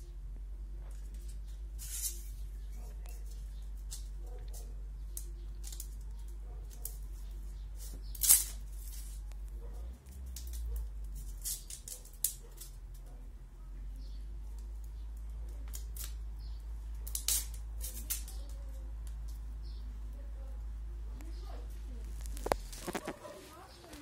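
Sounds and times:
bamboo sticks cracking: 0:03.0 - 0:13.1, 0:14.4 - 0:19.6, 0:22.0 - 0:23.2.

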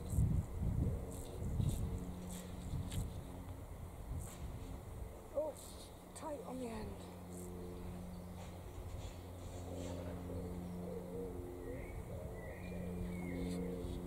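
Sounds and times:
pigeon cooing: 0:09.8 - 0:14.0.

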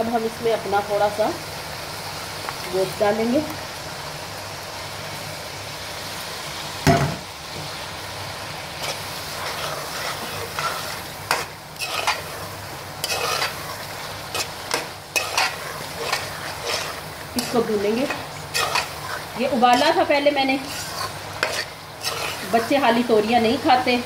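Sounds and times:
meat sizzling in a pot: 0:00.0 - 0:24.0
metal spoon scraping pot: 0:08.8 - 0:12.4, 0:13.0 - 0:22.8.

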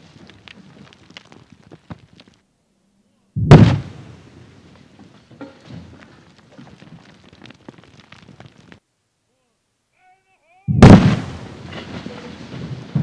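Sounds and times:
falling rock debris clicks: 0:00.0 - 0:02.4, 0:04.7 - 0:08.8, 0:11.1 - 0:13.0
blast bang and rumble: 0:03.4 - 0:04.2, 0:10.7 - 0:13.0.

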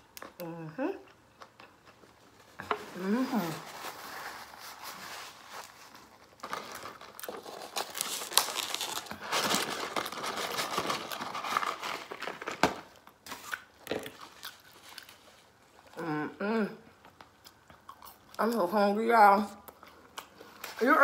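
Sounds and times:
cardboard packaging crinkling: 0:02.1 - 0:15.6.

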